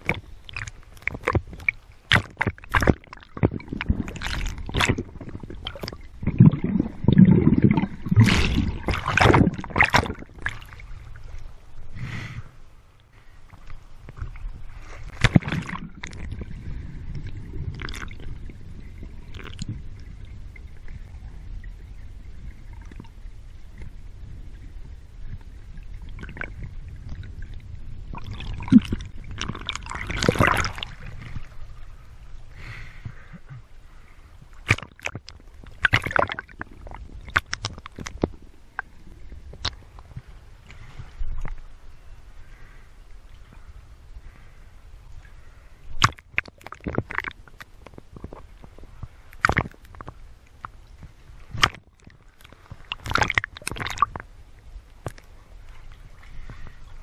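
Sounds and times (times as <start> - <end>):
steady low rumble: 0.0 - 34.6
water sloshing and gurgling: 0.0 - 57.0
sharp splashes: 4.2 - 10.9, 34.6 - 35.1.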